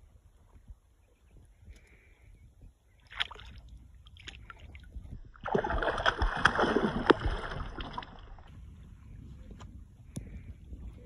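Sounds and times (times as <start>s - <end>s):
fish thrashing and splashing: 5.4s - 8.5s.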